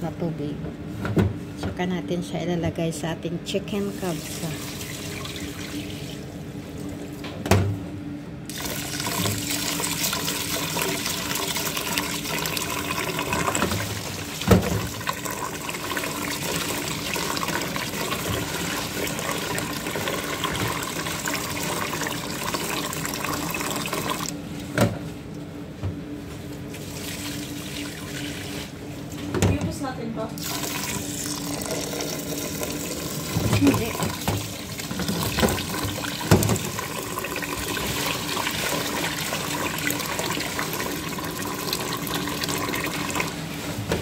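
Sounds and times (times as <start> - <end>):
tap water running into pot: 8.5 - 24.4, 30.4 - 43.4.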